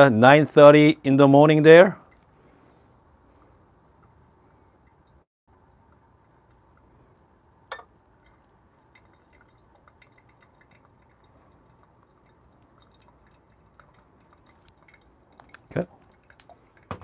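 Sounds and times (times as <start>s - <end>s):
water poured onto coffee grounds: 8.1s - 16.9s
soft pattering and ticks: 8.2s - 16.9s.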